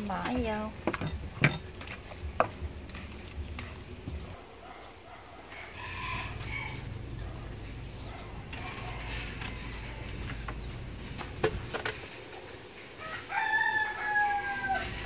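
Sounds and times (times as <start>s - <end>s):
rooster crowing: 5.4s - 7.4s, 8.3s - 10.4s, 13.0s - 15.0s.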